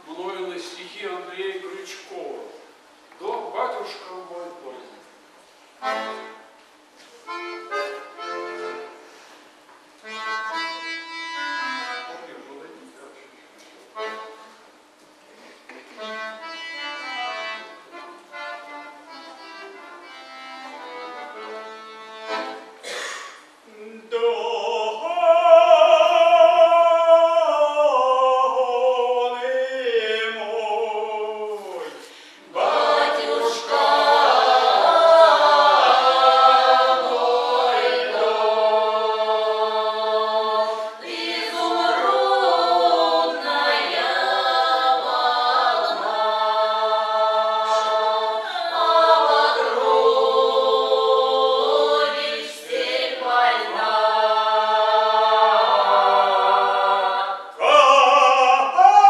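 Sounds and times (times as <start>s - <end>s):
folk ensemble singing: 5.8s - 6.6s, 7.2s - 9.4s, 15.8s - 23.0s, 23.6s - 59.0s.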